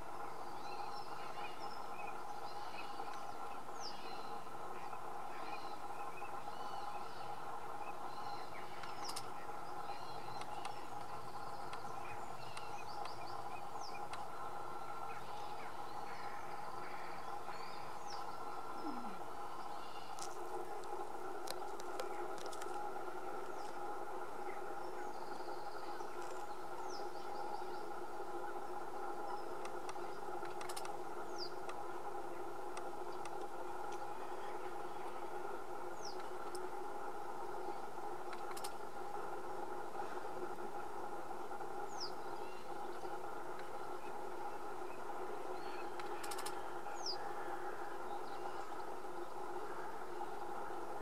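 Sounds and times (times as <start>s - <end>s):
steady hum: 0.0s - 51.0s
small birds chirping: 0.1s - 36.7s, 41.8s - 50.4s
faint bird chirps: 0.3s - 20.2s
sharp clicks: 8.8s - 9.3s, 29.6s - 31.0s, 38.3s - 38.8s, 46.0s - 46.6s
sharp ticks: 29.6s - 31.0s, 38.3s - 38.8s, 46.0s - 46.6s.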